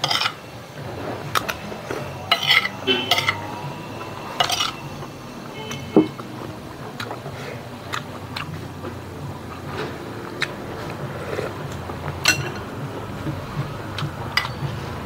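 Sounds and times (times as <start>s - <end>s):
cutlery clinking on plate: 12.2s - 12.7s.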